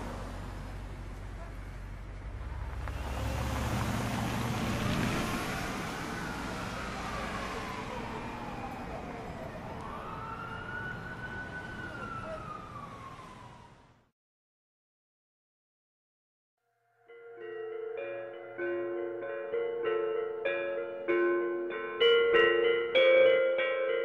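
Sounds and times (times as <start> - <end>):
car engine rumbling past: 0.0 - 9.5
city traffic noise: 0.0 - 14.1, 17.4 - 24.0
emergency vehicle siren wailing: 2.4 - 14.1.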